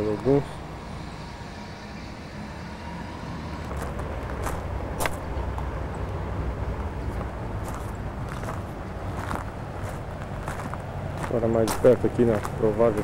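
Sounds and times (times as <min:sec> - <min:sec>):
low rumble: 0:00.5 - 0:11.2
footsteps on dry grass: 0:03.7 - 0:05.3, 0:07.1 - 0:13.0.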